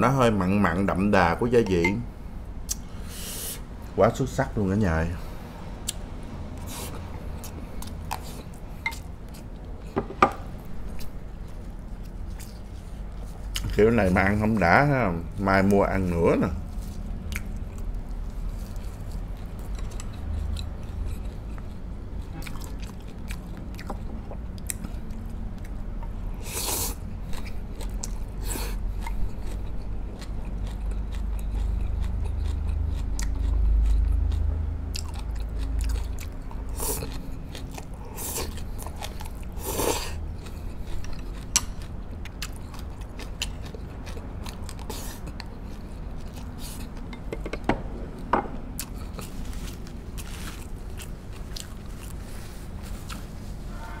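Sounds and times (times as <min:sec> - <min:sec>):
close-up chewing: 0:16.6 - 0:47.3, 0:48.0 - 0:53.3.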